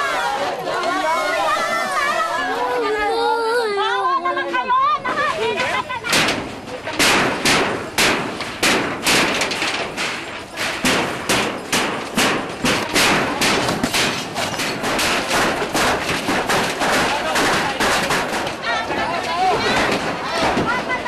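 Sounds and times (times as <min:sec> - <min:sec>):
banging on wood and corrugated iron: 0:05.0 - 0:21.0.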